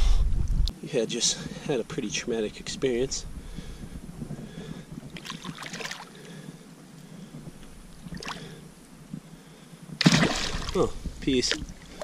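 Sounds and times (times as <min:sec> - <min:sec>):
water splashing: 0:05.1 - 0:06.3, 0:08.0 - 0:08.6, 0:10.0 - 0:12.0.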